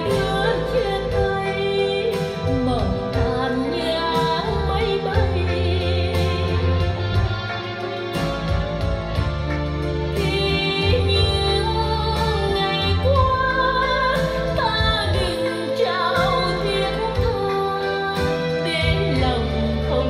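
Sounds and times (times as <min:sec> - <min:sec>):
song over loudspeakers: 0:00.0 - 0:20.0.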